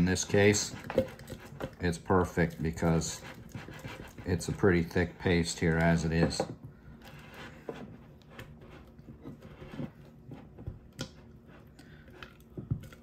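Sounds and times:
spoon stirring thick starter: 0.0s - 6.4s.

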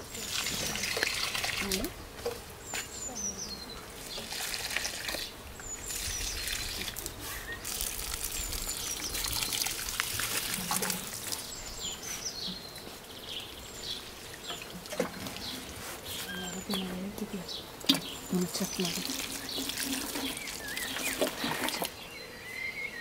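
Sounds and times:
water splashing onto soil: 0.1s - 1.9s, 4.1s - 11.6s, 17.9s - 21.9s
bird chirps: 11.3s - 23.0s.

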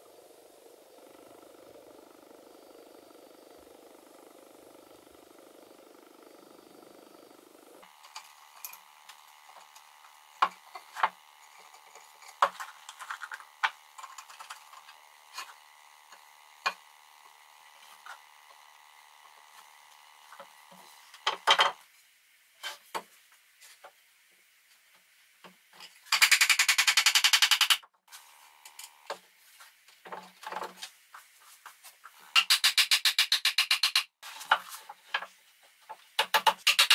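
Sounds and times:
faint steady hum: 0.0s - 27.0s, 27.9s - 32.4s
loud even buzz: 0.4s - 21.8s
wooden parts knocking on workbench: 21.2s - 21.8s.

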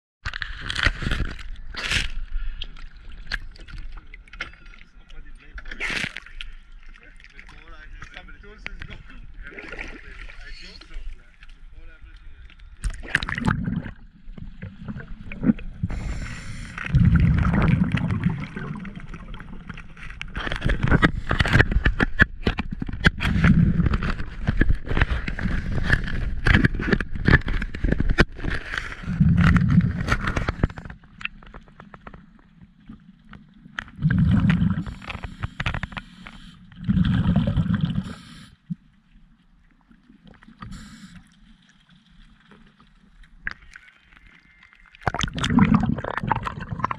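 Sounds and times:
water gurgling and sloshing: 0.3s - 46.9s
water bubbling: 12.6s - 22.1s, 22.7s - 39.0s, 40.0s - 46.9s
sharp clicks and crackles: 16.4s - 37.0s.

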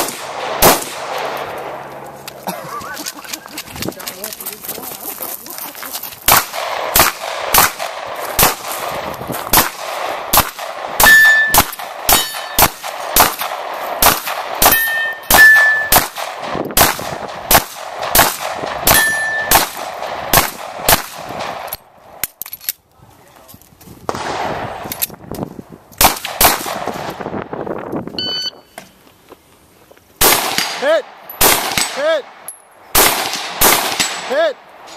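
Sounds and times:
pistol shots: 0.0s - 1.5s, 6.2s - 21.8s, 24.1s - 25.1s, 26.0s - 27.1s, 30.2s - 34.5s
steel targets ringing: 11.0s - 12.7s, 14.6s - 16.0s, 18.9s - 19.6s.

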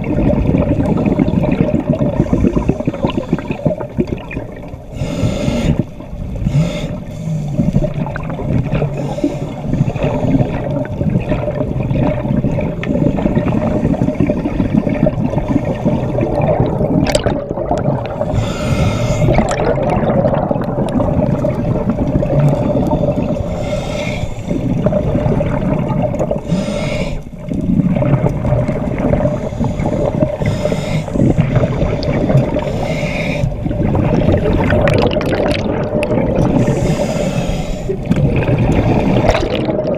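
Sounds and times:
low underwater rumble: 0.0s - 26.6s, 27.2s - 39.9s
bubbles gurgling: 0.0s - 39.9s
diver breathing through regulator: 2.1s - 3.9s, 4.8s - 8.0s, 8.7s - 10.7s, 18.2s - 19.8s, 22.5s - 25.1s, 26.3s - 27.6s, 29.1s - 34.0s, 36.4s - 39.6s.

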